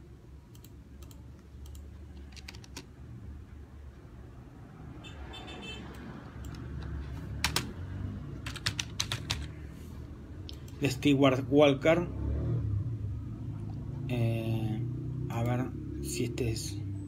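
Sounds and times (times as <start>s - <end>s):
computer keyboard clicks: 0.5s - 2.9s, 6.0s - 7.7s, 8.4s - 9.6s.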